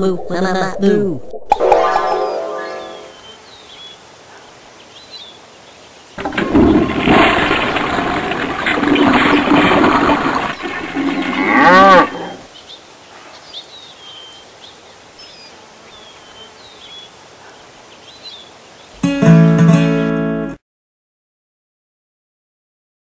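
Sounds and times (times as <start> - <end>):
faint bird chirps: 1.9 - 5.4
cartoon cow mooing: 11.4 - 12.4
strummed guitar chord: 19.0 - 20.6.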